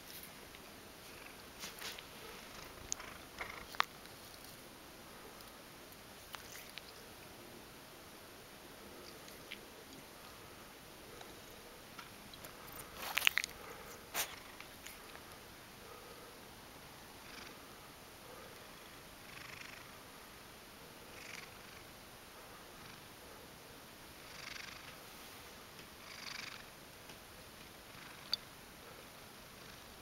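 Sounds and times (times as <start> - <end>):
cat purring: 1.0 - 5.6, 6.2 - 7.6, 8.8 - 16.4, 17.1 - 20.0, 21.0 - 21.9, 24.2 - 25.3, 26.0 - 26.8, 27.9 - 30.0.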